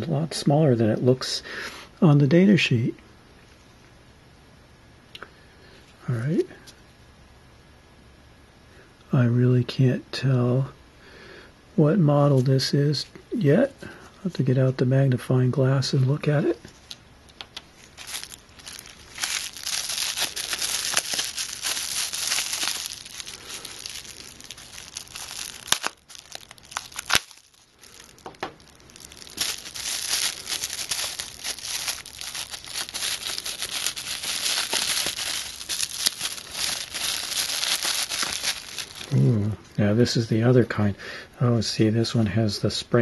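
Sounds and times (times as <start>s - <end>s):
plastic bubble bag crinkling: 16.7s - 39.2s.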